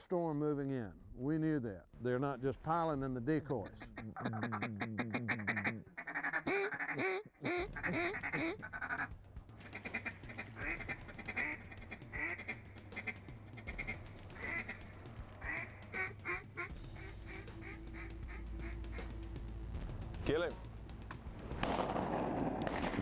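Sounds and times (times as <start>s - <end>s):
duck chatter: 3.5s - 19.3s
duck quacking: 3.6s - 19.1s.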